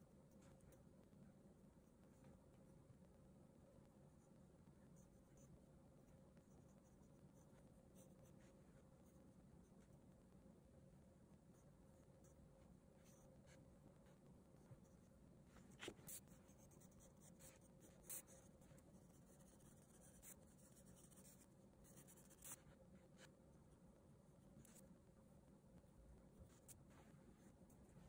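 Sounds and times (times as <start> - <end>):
pencil scratching on paper: 14.8 - 23.3.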